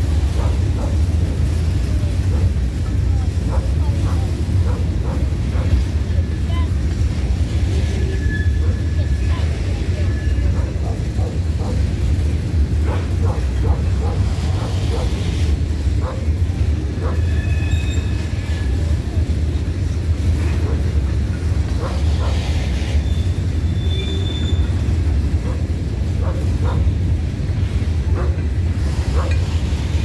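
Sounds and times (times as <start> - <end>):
freight train rumble: 0.0 - 30.0
faint wheel squeals: 7.9 - 10.6, 17.2 - 19.0, 22.9 - 24.9.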